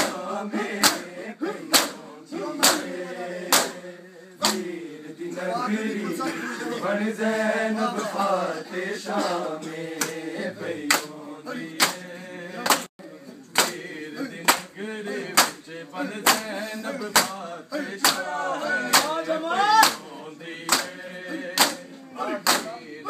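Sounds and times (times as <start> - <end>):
hands striking chests in unison: 0.0 - 2.0, 2.6 - 3.8, 4.4 - 4.7, 13.5 - 13.8, 14.4 - 14.7, 15.3 - 15.6, 16.2 - 16.5, 17.1 - 17.4, 18.0 - 18.3, 18.9 - 19.2, 19.8 - 20.0, 20.7 - 21.8, 22.4 - 22.8
men chanting together: 0.0 - 23.0.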